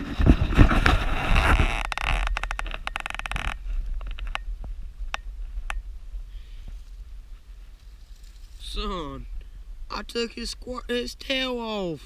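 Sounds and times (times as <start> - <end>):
crackles of needles and twigs: 0.8 - 5.8, 6.4 - 9.5.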